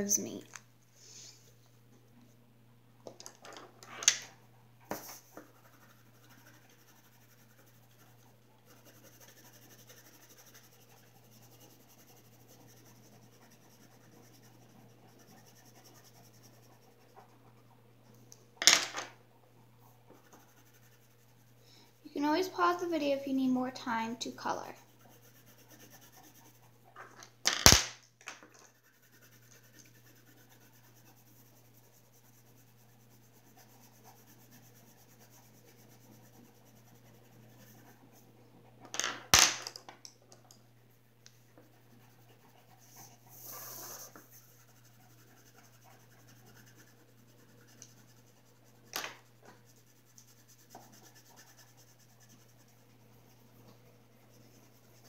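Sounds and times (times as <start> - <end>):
pencil scratching on paper: 4.9 - 17.9, 20.2 - 21.6, 24.2 - 27.0, 28.6 - 38.4, 41.4 - 55.0.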